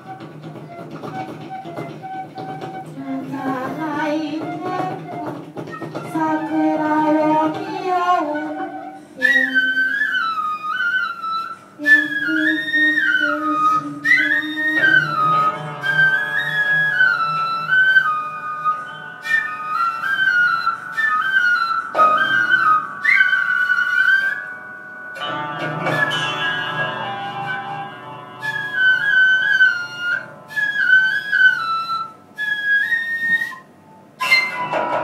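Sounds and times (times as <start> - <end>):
flute melody: 0.0 - 35.0
sustained ensemble accompaniment: 14.0 - 32.5, 33.7 - 35.0.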